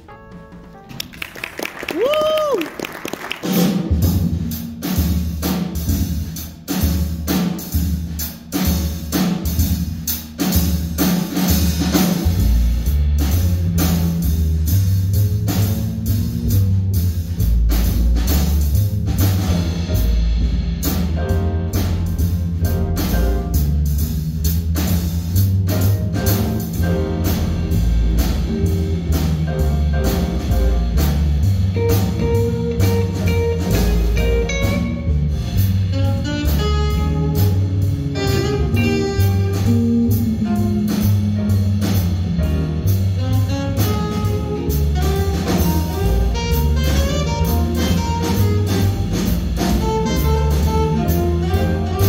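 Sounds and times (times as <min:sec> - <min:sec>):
piano notes: 0:00.0 - 0:01.6, 0:19.1 - 0:52.0
drum kit keeping time: 0:00.0 - 0:52.0
upright bass line: 0:03.4 - 0:52.0.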